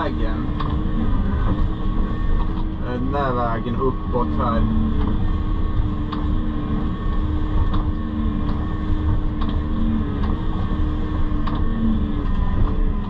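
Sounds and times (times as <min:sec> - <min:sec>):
excavator engine running: 0:00.0 - 0:13.0.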